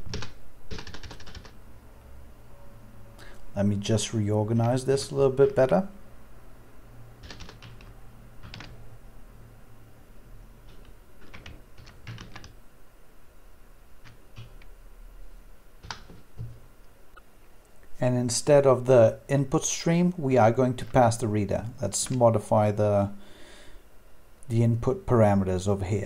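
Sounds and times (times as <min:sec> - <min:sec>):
computer keyboard keystrokes: 0:00.0 - 0:01.6, 0:07.2 - 0:08.8, 0:10.7 - 0:12.6, 0:15.8 - 0:16.6.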